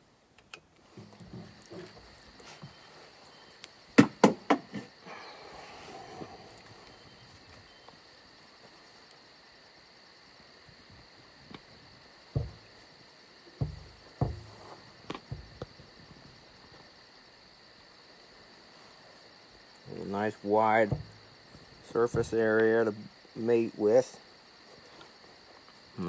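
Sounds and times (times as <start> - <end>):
crickets chirping: 0.0 - 26.0
dull thumps: 0.9 - 3.0, 3.9 - 5.0, 11.4 - 16.4, 20.2 - 23.0.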